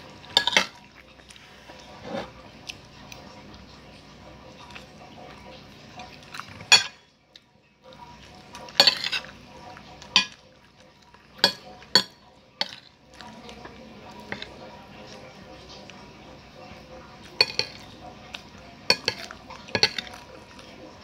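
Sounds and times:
cutlery clinking on a plate: 0:00.3 - 0:00.8, 0:06.5 - 0:07.0, 0:08.7 - 0:09.3, 0:10.0 - 0:10.4, 0:11.4 - 0:13.0, 0:14.1 - 0:14.6, 0:17.3 - 0:20.3.

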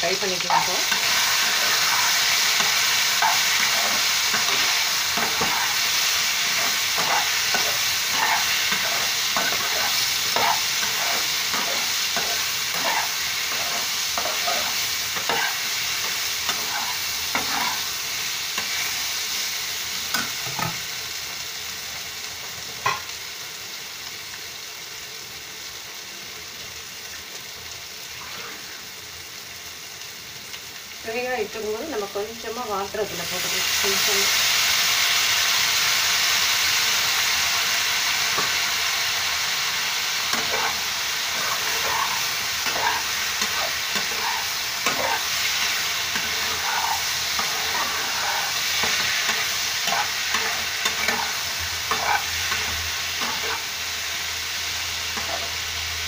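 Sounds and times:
food sizzling in oil: 0:00.0 - 0:56.0
steel spoon scraping a pan: 0:00.4 - 0:19.2, 0:40.2 - 0:53.7, 0:55.1 - 0:55.6.

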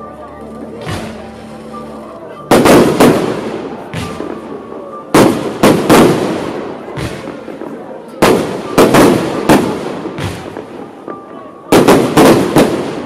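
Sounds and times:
fireworks bursting with loud bangs: 0:00.6 - 0:01.8, 0:02.4 - 0:13.0.

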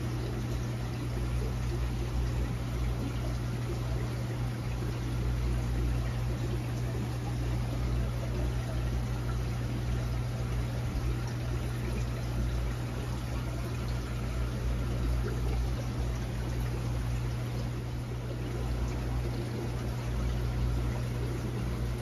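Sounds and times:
low pump hum: 0:00.0 - 0:22.0
trickling water: 0:00.0 - 0:22.0.

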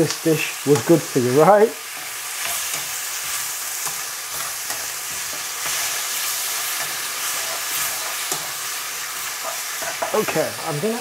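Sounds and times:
sauce sizzling in a pan: 0:00.0 - 0:11.0.

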